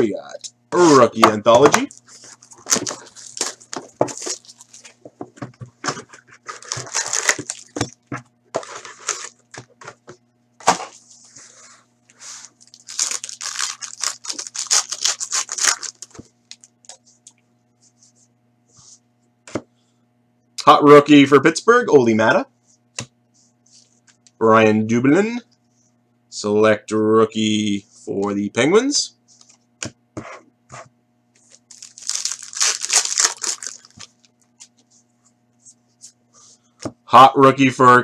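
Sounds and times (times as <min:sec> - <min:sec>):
faint steady hum: 0:00.0 - 0:38.0
cards crinkling and rustling: 0:01.8 - 0:05.1, 0:05.9 - 0:09.7, 0:12.4 - 0:17.3, 0:31.4 - 0:34.9
card packs tearing: 0:02.1 - 0:05.0, 0:06.4 - 0:08.0, 0:08.6 - 0:09.5, 0:12.4 - 0:16.7, 0:31.6 - 0:34.2.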